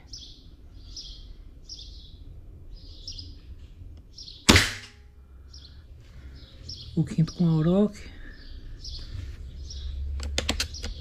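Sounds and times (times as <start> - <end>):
small birds chirping: 0.0 - 4.6, 5.2 - 11.0
air rifle shot: 4.5 - 5.0.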